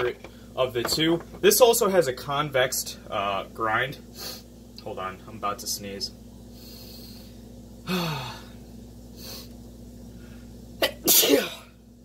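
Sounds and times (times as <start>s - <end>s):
man going ahh: 7.8s - 8.6s
man sneezing: 10.8s - 11.7s.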